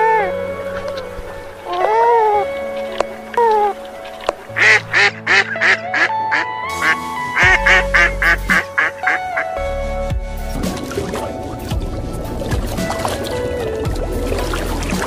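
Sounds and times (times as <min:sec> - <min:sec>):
background music: 0:00.0 - 0:15.0
geese honking: 0:01.7 - 0:09.6.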